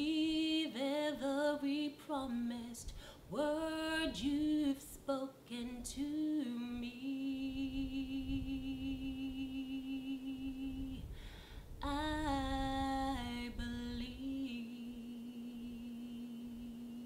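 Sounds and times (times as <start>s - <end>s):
woman singing a cappella: 0.0s - 17.0s
singer breathing in: 2.9s - 3.3s, 11.1s - 11.8s.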